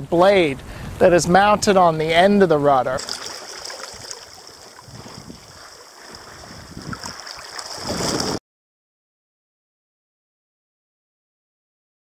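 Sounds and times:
seawater rushing past a rudder: 0:02.8 - 0:08.4.

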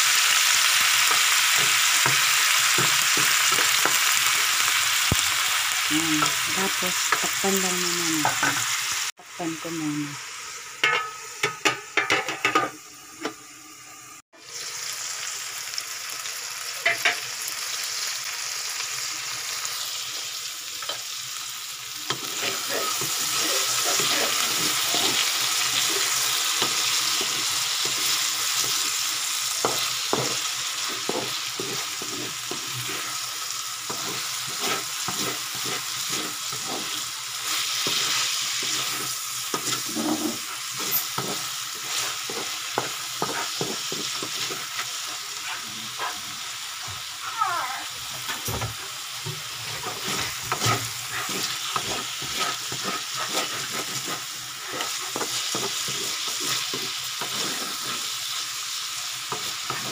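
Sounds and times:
vegetables sizzling in a wok: 0:00.0 - 0:59.9
wooden spatula scraping vegetables: 0:22.0 - 0:47.1, 0:48.1 - 0:59.9.

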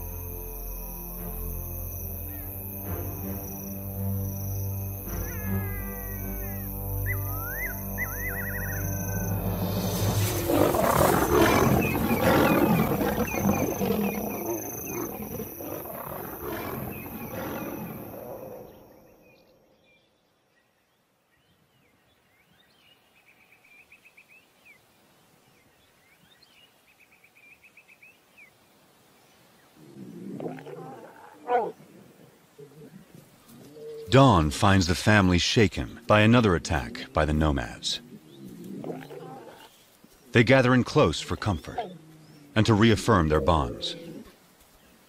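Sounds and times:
faint chirping: 0:00.0 - 0:30.4
lions roaring: 0:08.1 - 0:19.0, 0:29.8 - 0:34.1, 0:38.0 - 0:39.8, 0:41.2 - 0:44.3.

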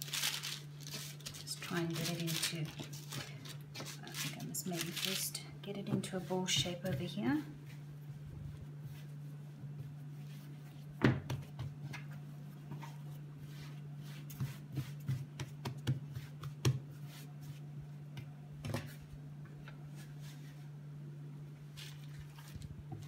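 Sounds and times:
steady low hum: 0:00.0 - 0:23.0
dough thumping on a counter: 0:11.0 - 0:12.1, 0:14.4 - 0:16.9.

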